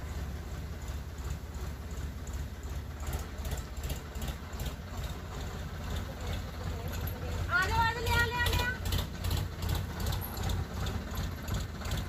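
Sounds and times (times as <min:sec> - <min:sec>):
tractor engine rumbling: 0:00.0 - 0:12.0.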